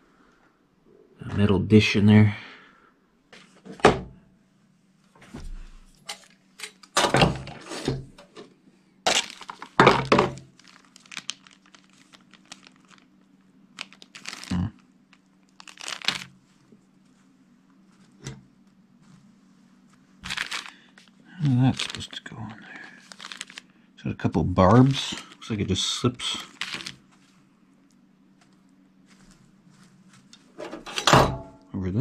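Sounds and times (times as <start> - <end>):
plastic bag rustling: 9.1 - 23.7, 24.7 - 27.5.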